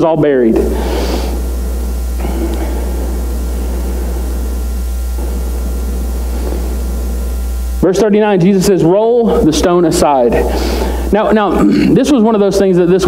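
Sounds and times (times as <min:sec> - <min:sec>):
constant hiss: 0:00.0 - 0:13.0
low electrical hum: 0:00.0 - 0:13.0.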